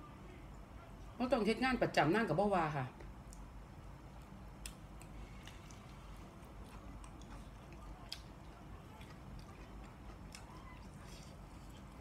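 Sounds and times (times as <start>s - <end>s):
person chewing wet mouth clicks: 6.6s - 12.0s.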